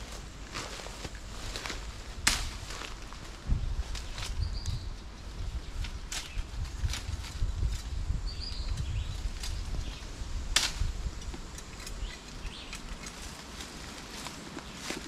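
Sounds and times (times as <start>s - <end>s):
machete cutting and snapping sticks: 1.8s - 3.0s, 5.8s - 8.0s, 8.6s - 15.0s.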